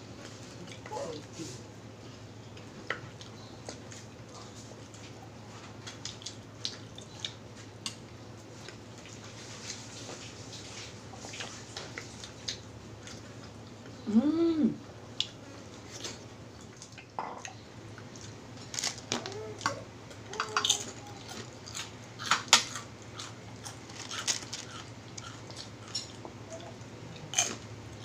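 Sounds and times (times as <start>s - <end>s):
chewing and mouth sounds: 2.5s - 8.0s, 19.3s - 28.0s.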